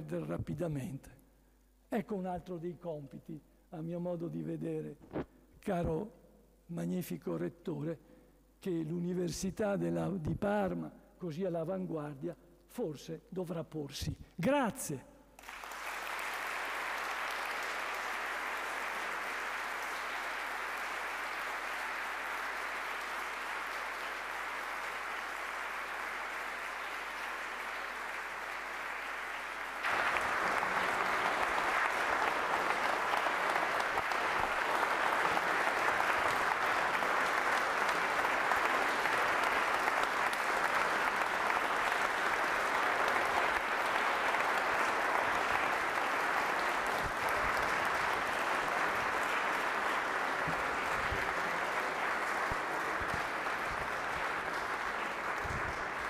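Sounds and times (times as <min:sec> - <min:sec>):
audience applauding: 0:15.4 - 0:56.0.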